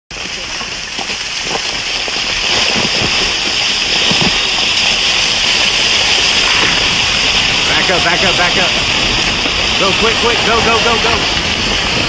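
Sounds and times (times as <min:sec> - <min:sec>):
rockslide rushing hiss: 0:00.1 - 0:12.0
low thuds of rocks: 0:00.2 - 0:07.4.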